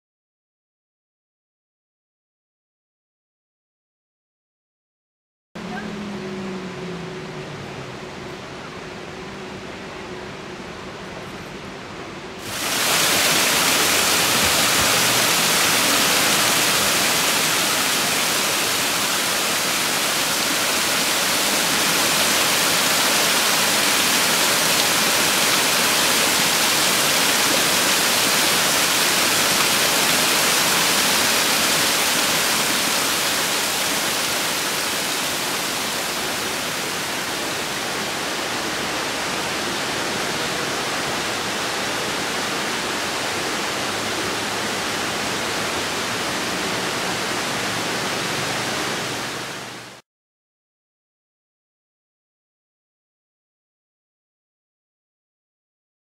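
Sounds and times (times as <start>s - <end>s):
creek water rushing over rocks: 12.4s - 50.0s.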